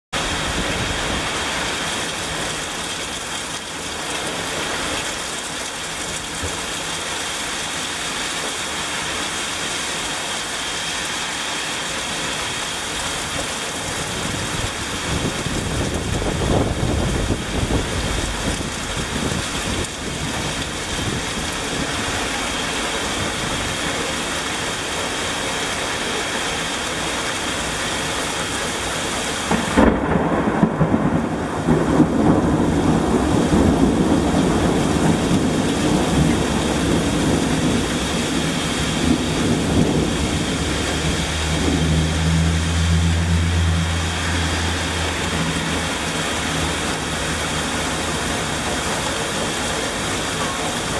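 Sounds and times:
torrential rain pouring: 0.1s - 50.9s
low rumble: 38.6s - 48.4s.

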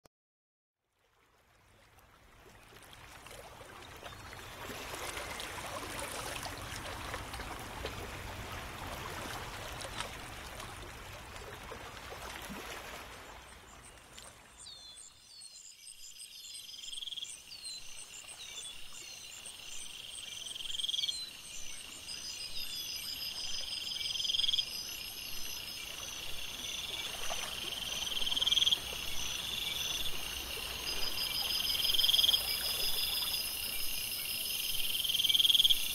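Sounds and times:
frogs calling: 23.8s - 35.9s
insects trilling: 24.0s - 35.9s
flowing water hiss: 24.6s - 35.9s.

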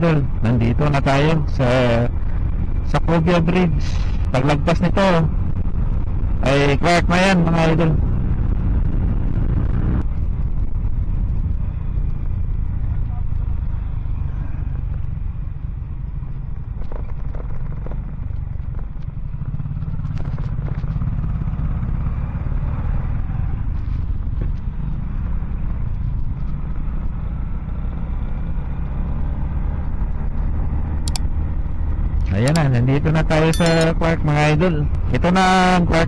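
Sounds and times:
motorcycle engine rumble: 0.0s - 35.7s
wind noise: 8.0s - 12.5s.

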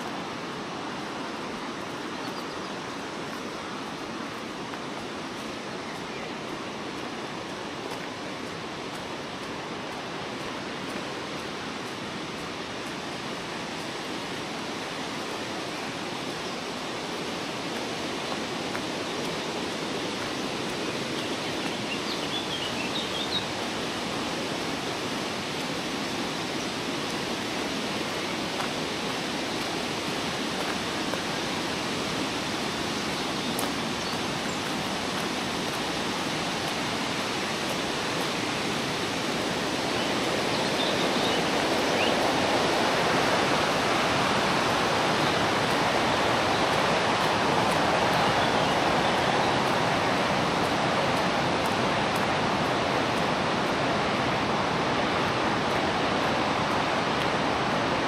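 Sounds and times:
river water rushing: 0.0s - 58.0s.

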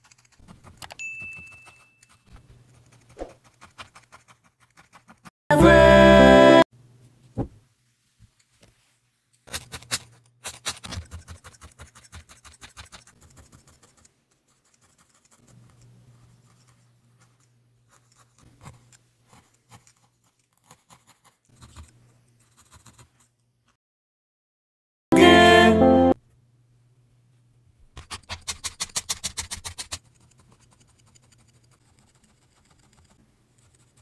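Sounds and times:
felting needle poking: 0.0s - 5.3s.

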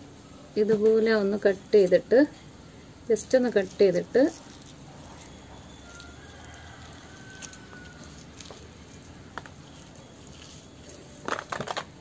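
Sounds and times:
low background noise: 0.0s - 12.0s
sharp crackling taps: 9.3s - 9.8s.

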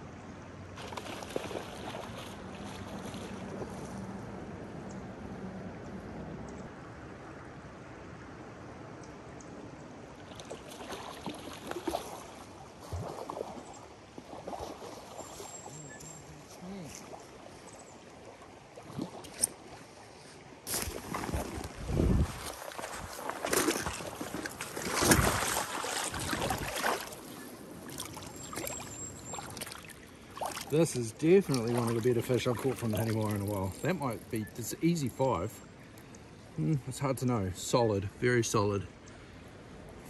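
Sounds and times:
sharp splashes and knocks: 0.8s - 3.9s, 10.2s - 15.6s, 18.7s - 19.9s, 20.6s - 34.4s
river current rushing: 20.7s - 36.6s.

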